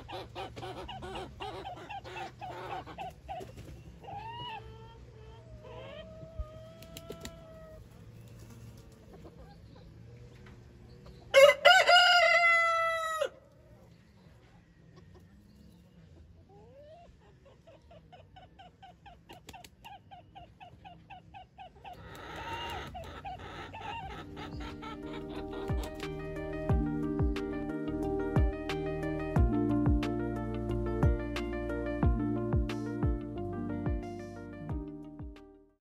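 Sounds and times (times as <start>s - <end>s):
soft chicken clucks: 0.0s - 11.4s, 13.5s - 26.2s
rooster crowing: 11.3s - 13.4s.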